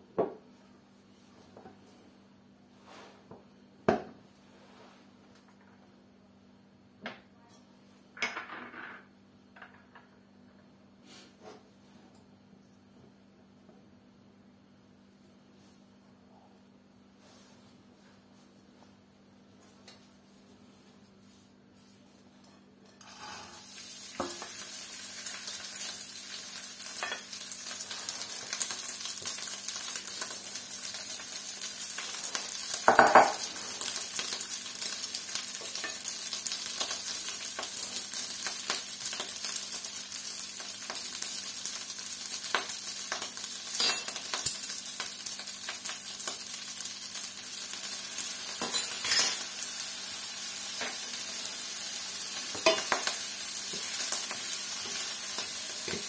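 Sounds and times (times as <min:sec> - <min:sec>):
rice sizzling in hot oil: 0:22.9 - 0:56.0.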